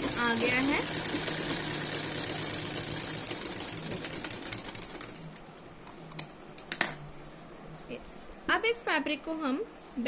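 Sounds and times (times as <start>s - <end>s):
sewing machine stitching: 0.0s - 5.4s.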